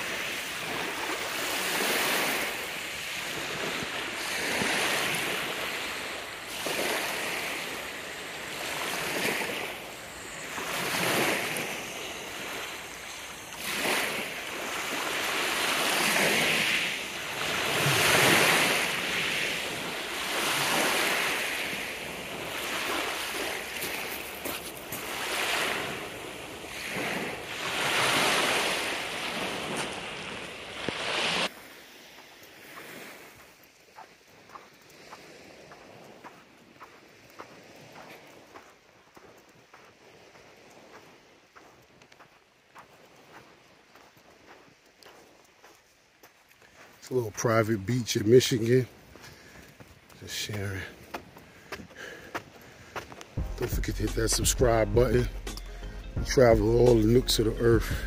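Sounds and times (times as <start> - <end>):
waves washing on pebble shore: 0.0 - 41.7, 50.2 - 51.4.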